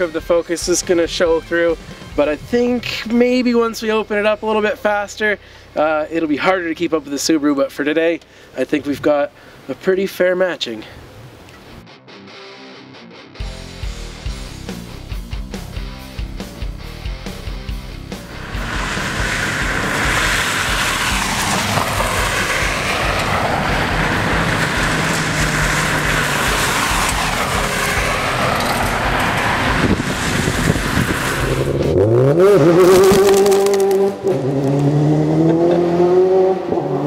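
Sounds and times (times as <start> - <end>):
car engines running: 16.7 - 37.0
engine revving: 16.7 - 37.0
tyres rushing on gravel: 18.2 - 34.3.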